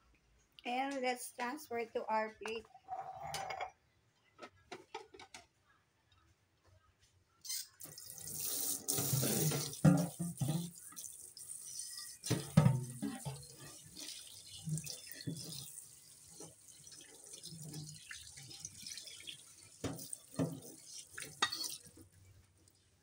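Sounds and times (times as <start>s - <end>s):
tap water running into sink: 7.8s - 22.0s
items clattering in sink: 8.8s - 11.0s, 11.9s - 22.1s.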